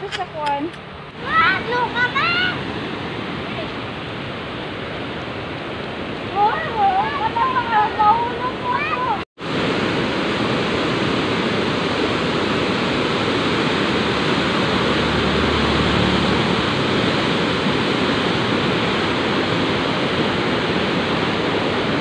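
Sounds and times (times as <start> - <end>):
river white water rushing: 0.9 - 22.0.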